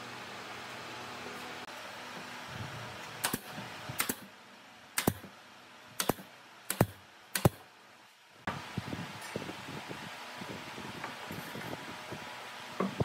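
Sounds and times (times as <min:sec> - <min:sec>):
nail gun shots: 0:03.2 - 0:04.3, 0:05.0 - 0:05.3, 0:06.0 - 0:07.6.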